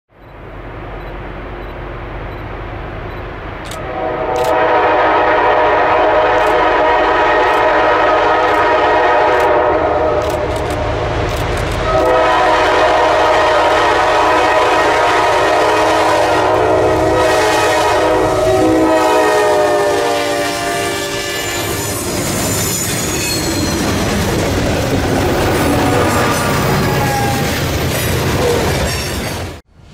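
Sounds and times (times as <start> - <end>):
train wheels on rails: 0.2 - 29.9
locomotive air horn blasts: 3.8 - 10.5, 11.8 - 22.1, 25.5 - 27.5.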